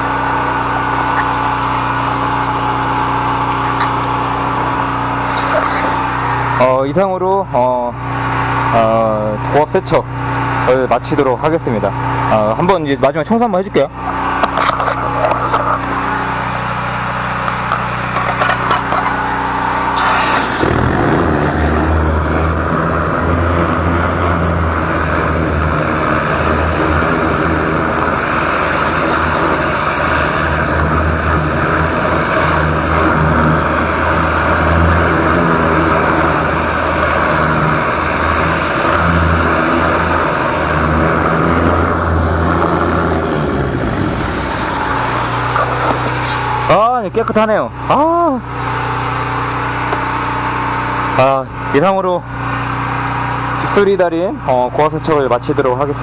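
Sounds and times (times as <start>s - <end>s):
sewer jetter engine running: 0.0s - 56.0s
water jet hissing: 19.8s - 46.7s.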